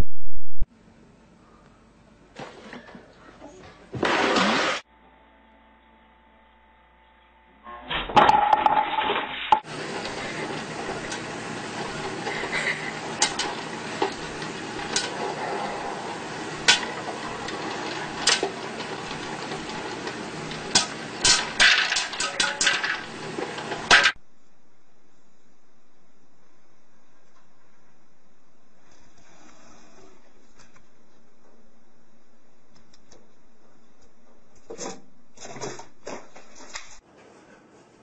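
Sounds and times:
loud clatter: 8.1s - 24.2s
popcorn kernels popping: 8.2s - 24.2s
popcorn maker whirring: 8.2s - 24.2s.

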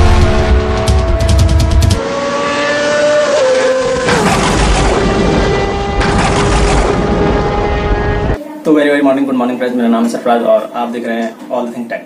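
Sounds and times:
cinematic sustained tones: 0.0s - 2.0s
deep boom: 0.0s - 2.0s, 4.1s - 8.4s.

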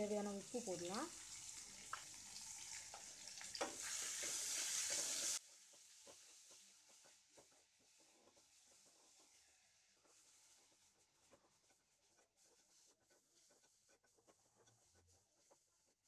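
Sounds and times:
vegetables sizzling in hot oil: 0.0s - 6.8s
spatula scraping and tapping: 3.6s - 9.4s.

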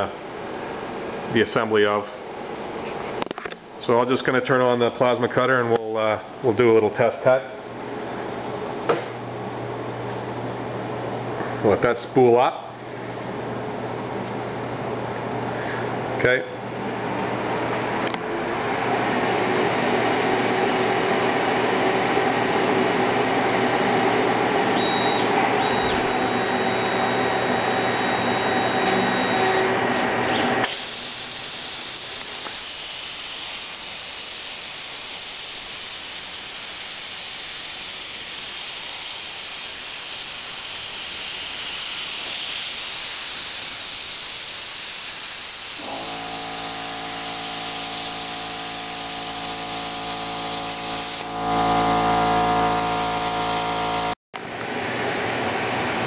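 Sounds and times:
multi-tone whine: 24.4s - 30.0s, 30.6s - 38.1s, 42.3s - 54.5s
plasma cutter humming: 24.8s - 29.6s, 30.6s - 54.2s
plasma torch hissing: 30.6s - 51.4s.

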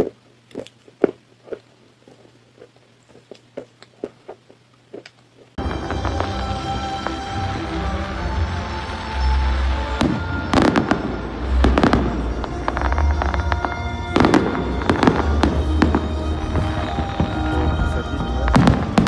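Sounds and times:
fireworks bangs and crackling: 5.6s - 19.0s
music playing: 5.6s - 19.0s.

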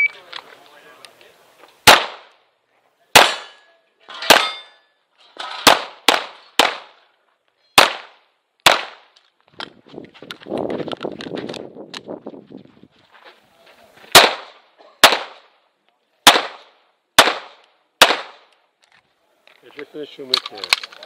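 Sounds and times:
pistol shots: 1.8s - 2.3s, 3.2s - 3.6s, 5.6s - 7.0s, 7.8s - 9.1s, 14.1s - 15.5s, 16.2s - 18.5s.

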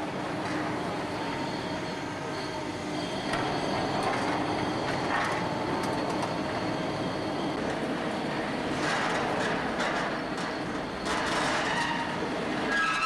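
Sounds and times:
metal squealing and scraping: 11.1s - 13.0s.

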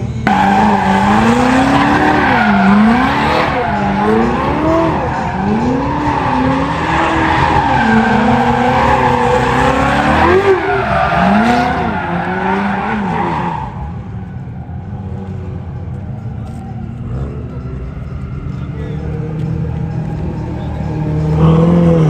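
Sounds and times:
car engine revving: 0.0s - 22.0s
tyre squeal and skidding: 0.3s - 15.5s.

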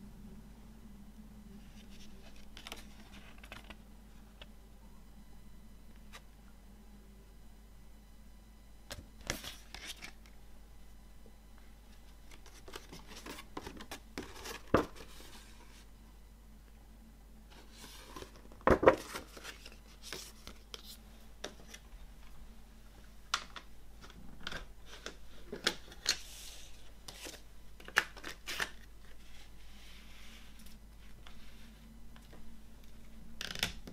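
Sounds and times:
paper rustling and crinkling: 1.6s - 3.8s, 9.2s - 10.3s, 12.0s - 15.9s, 17.5s - 21.9s, 24.0s - 32.4s.

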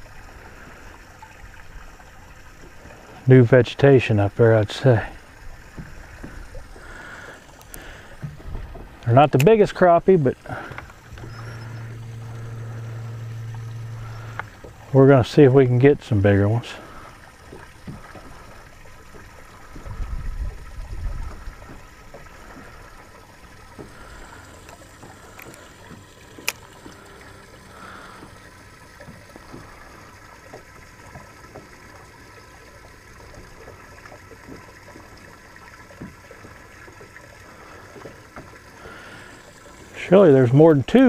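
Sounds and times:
ripples lapping against boat hull: 0.0s - 41.0s
low rumble: 10.3s - 15.6s.

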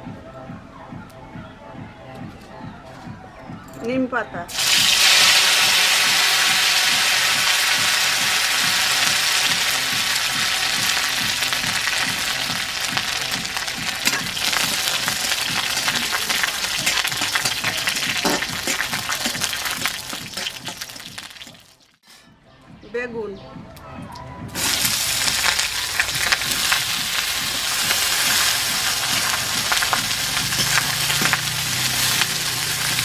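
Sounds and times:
leaves sizzling in hot oil: 4.5s - 21.8s, 24.6s - 33.0s
spatula scraping and tapping pan: 14.0s - 21.1s, 29.1s - 32.4s.

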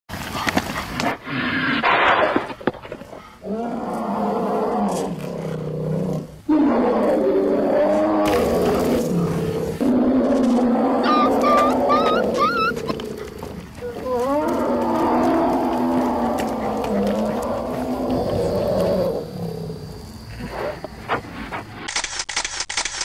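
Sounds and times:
deep growling: 3.4s - 20.8s.

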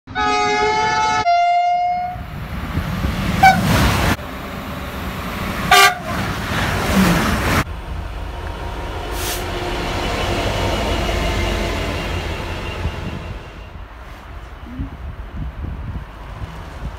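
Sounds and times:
train two-tone horn: 0.1s - 2.2s, 3.4s - 3.7s, 5.7s - 6.2s
passing trains rumbling: 0.1s - 16.9s.

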